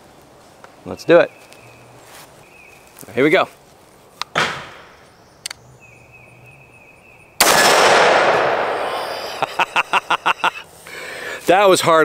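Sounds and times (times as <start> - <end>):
rifle shot with echo: 7.4 - 9.4.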